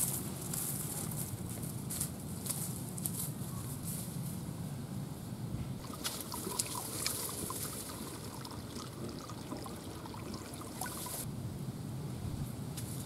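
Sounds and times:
water dripping: 5.8s - 11.2s
bowl scooping water splash: 5.8s - 11.3s
water trickling in a pool: 5.8s - 11.3s.

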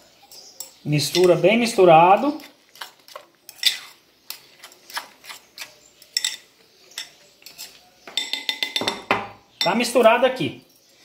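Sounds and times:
fork stirring in ceramic bowl: 0.2s - 8.8s.

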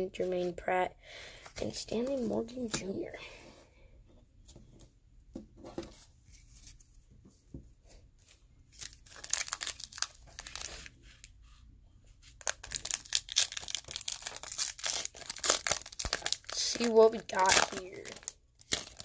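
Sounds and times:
wrapper tearing and crinkling: 8.8s - 11.0s, 12.4s - 19.0s.

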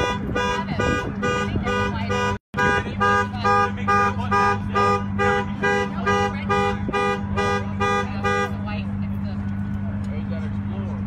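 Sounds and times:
car alarm horn honking: 0.0s - 8.7s.

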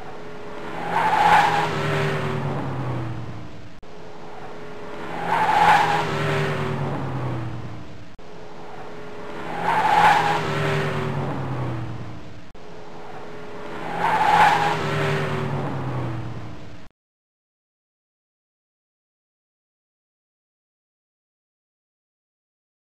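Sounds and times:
car driving past: 0.0s - 16.8s.

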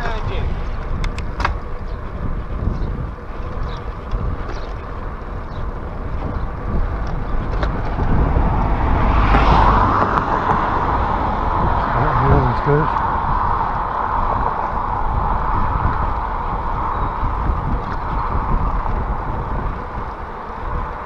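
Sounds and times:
wind rumbling on microphone: 0.0s - 21.0s
car passing close by: 7.6s - 17.3s.

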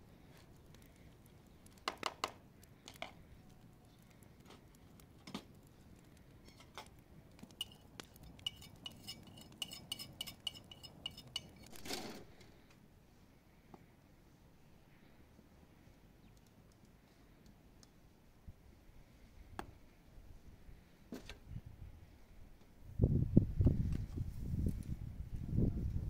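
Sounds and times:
spoon clinking on metal dishes: 7.6s - 11.7s.

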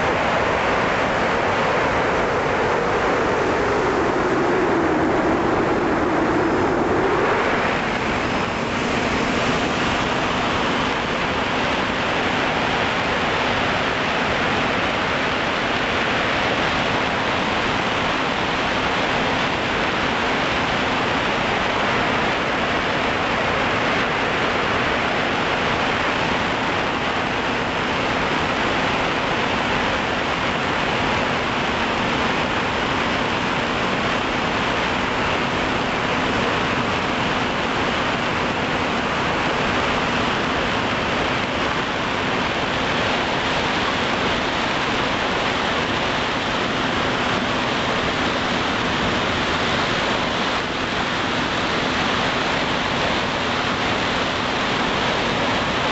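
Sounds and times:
drone propellers rushing: 1.4s - 11.7s.

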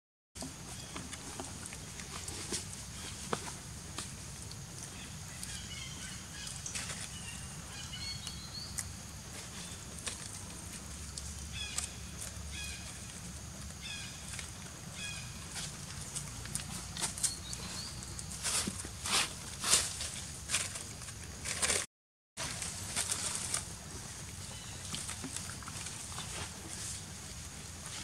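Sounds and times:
dry leaves rustling: 0.7s - 28.0s
birds chirping: 4.8s - 10.2s, 11.2s - 18.8s.

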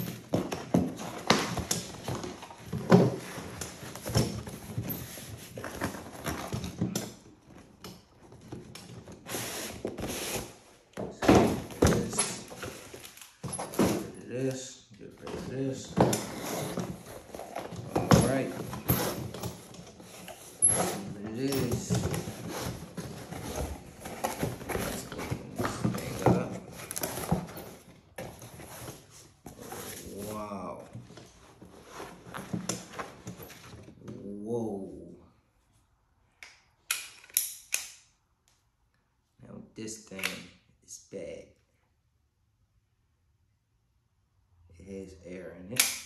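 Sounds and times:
box scraping: 9.1s - 10.6s, 15.3s - 30.4s.

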